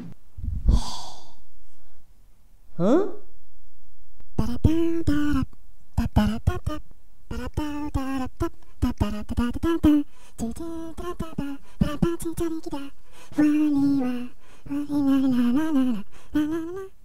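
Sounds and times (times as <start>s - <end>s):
person singing a cappella: 4.4s - 17.0s.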